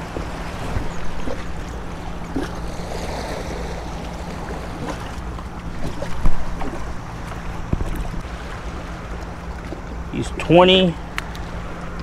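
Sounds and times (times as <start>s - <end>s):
waves washing against rocks: 0.0s - 8.7s
wind buffeting microphone: 0.0s - 9.8s.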